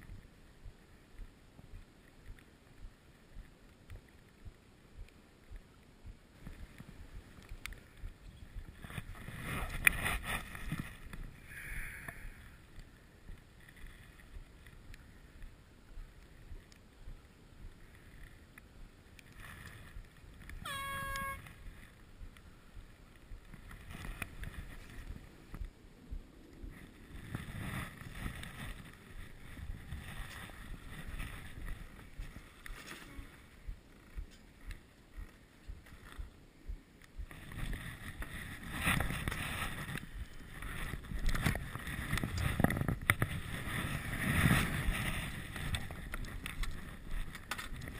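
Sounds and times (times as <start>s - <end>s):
air horn: 20.7s - 21.5s.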